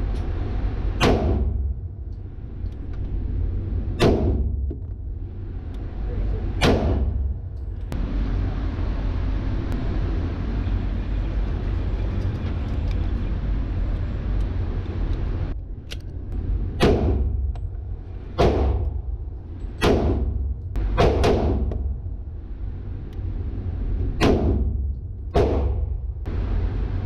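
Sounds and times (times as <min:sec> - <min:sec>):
rushing noise with low rumble: 0:00.0 - 0:27.0
pistol shots echoing indoors: 0:19.7 - 0:21.8.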